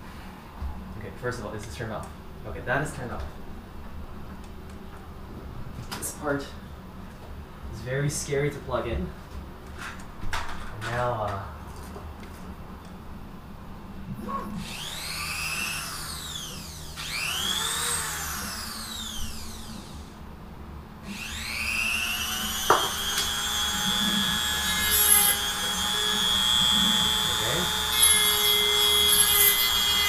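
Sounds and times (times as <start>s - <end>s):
rotary tool motor whine: 14.5s - 20.2s, 21.0s - 30.0s.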